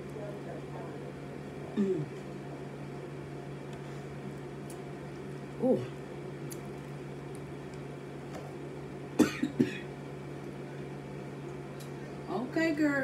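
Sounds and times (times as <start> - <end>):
steady low hum: 0.0 - 13.0
person humming mm: 1.8 - 2.1.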